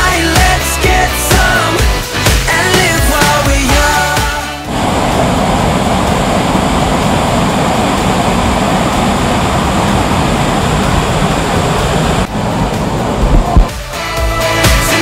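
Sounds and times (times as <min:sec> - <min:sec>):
waterfall rushing over rocks: 0:04.6 - 0:13.9.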